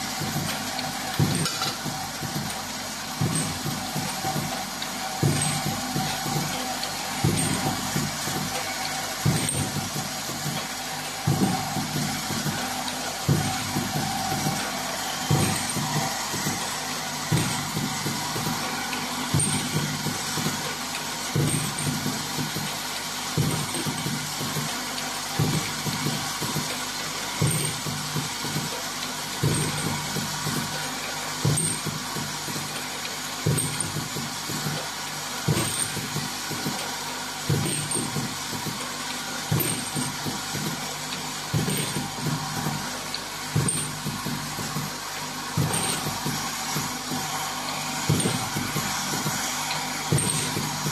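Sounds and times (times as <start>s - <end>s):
machine humming: 0.0s - 50.9s
machine knocking: 0.0s - 50.9s
machine whirring: 0.0s - 50.9s
pneumatic air hiss: 25.4s - 50.9s.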